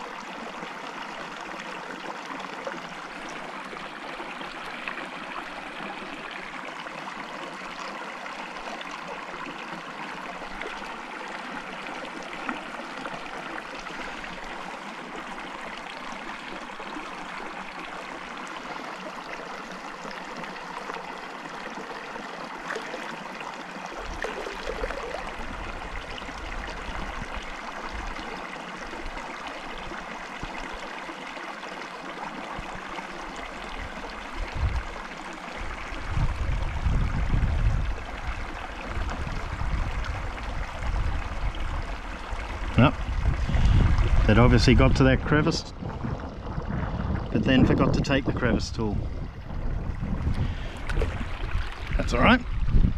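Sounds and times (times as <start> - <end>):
creek water running over stones: 0.0 - 52.9
low rumbling: 42.5 - 52.9.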